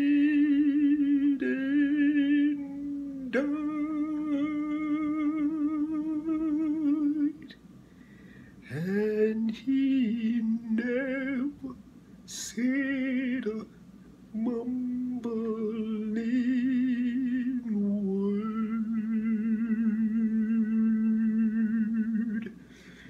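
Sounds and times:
man singing with vibrato: 0.0s - 7.6s, 8.6s - 22.6s.

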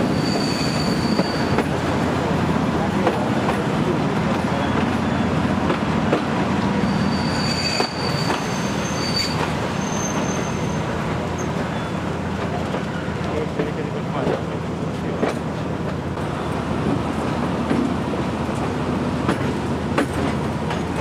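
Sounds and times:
high wheel squeals: 0.0s - 1.7s, 6.7s - 12.1s
train wheels rumbling on rail: 0.0s - 21.0s.

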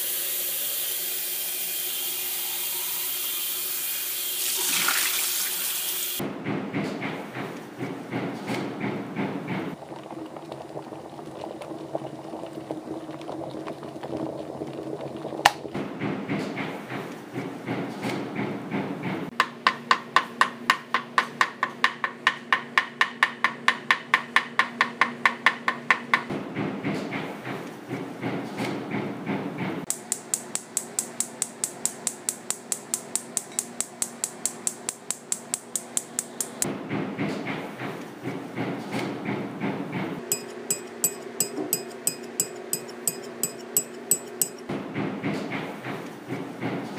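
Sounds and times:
liquid bubbling: 9.8s - 15.8s
rapid sharp clicks: 29.9s - 36.6s.

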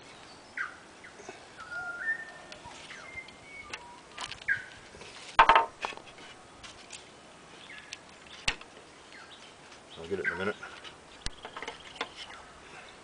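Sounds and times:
birds chirping: 0.0s - 5.1s, 6.9s - 13.0s
wooden knocks and clatter: 5.3s - 6.9s, 10.8s - 12.3s.

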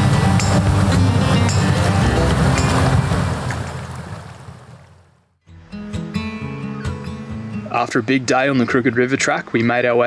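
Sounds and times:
steady rushing noise: 0.0s - 5.0s.

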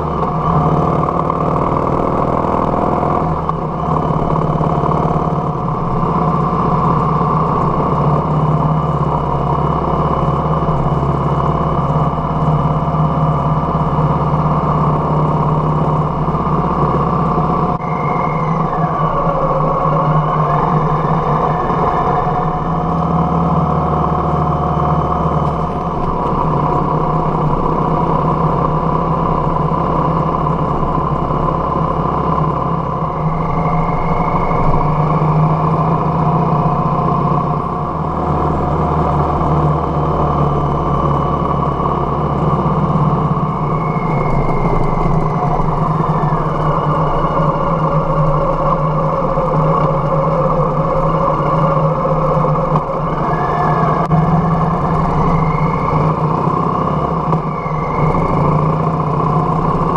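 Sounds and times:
motorcycle engine running: 0.0s - 59.9s.

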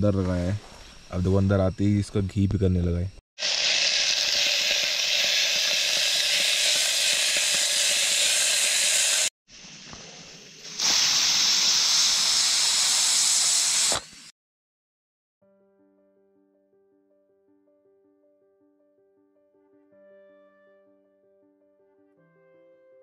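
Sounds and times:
pressure cooker steam hissing: 3.4s - 14.3s.

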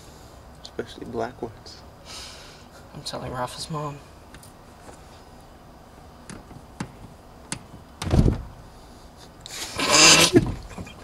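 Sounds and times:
heavy thump against car interior: 6.3s - 8.6s, 10.4s - 10.8s.

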